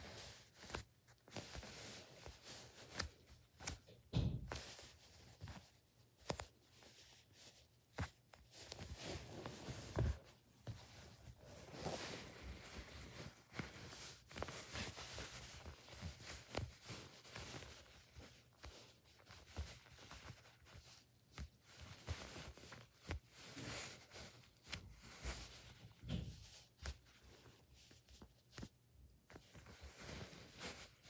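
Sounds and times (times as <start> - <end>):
fingers squeezing soft foam: 0.0 - 31.0.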